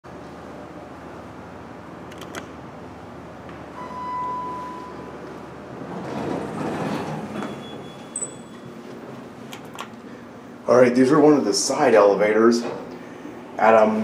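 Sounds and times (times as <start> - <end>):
electronic elevator chime: 3.8 - 5.3, 7.4 - 9.0
sliding doors opening: 4.7 - 10.0.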